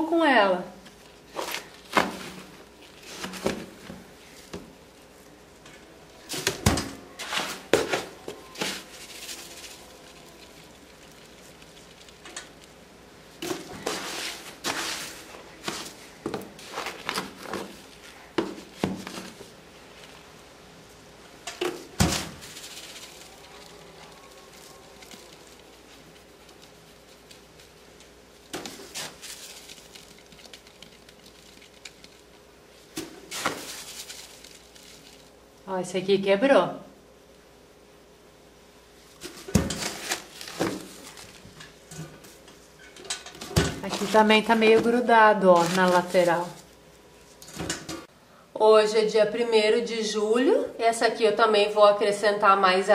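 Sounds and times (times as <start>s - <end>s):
scoop scraping cat litter: 7.2s - 12.2s, 13.4s - 20.1s, 33.0s - 35.2s
litter grains rattling: 8.6s - 20.2s, 20.9s - 35.6s
litter scoop shaking: 22.0s - 27.8s.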